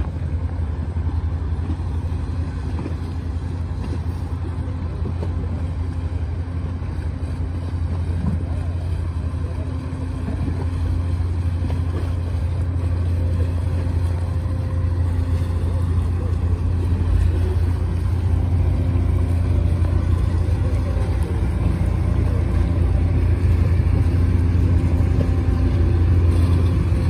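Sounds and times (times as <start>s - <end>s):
boat diesel engines droning: 0.0s - 27.0s.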